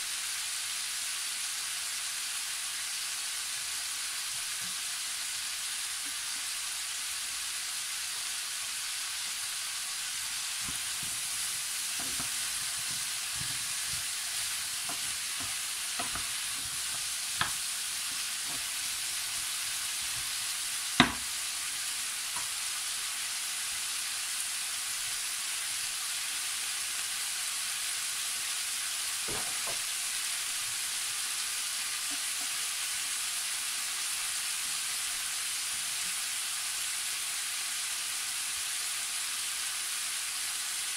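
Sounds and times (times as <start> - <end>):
vegetables sizzling in a pan: 0.0 - 40.9
spoon knocking against pan: 10.6 - 18.8, 21.0 - 21.4
wooden spoon stirring: 10.6 - 21.2.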